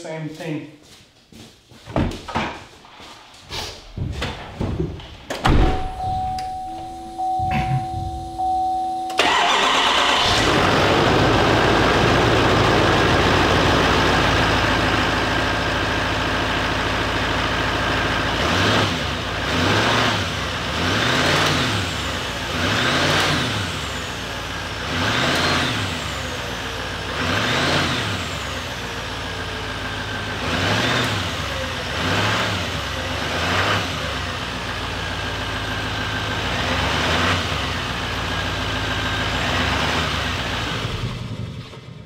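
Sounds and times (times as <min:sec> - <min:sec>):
pickup engine starting: 0:05.4 - 0:18.0
steady tone: 0:05.6 - 0:09.5
engine idling: 0:05.9 - 0:18.2.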